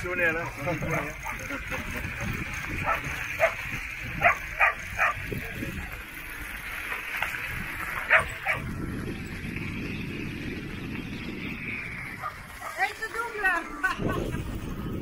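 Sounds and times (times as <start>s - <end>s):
dog yipping: 4.2s - 5.2s, 8.1s - 8.6s.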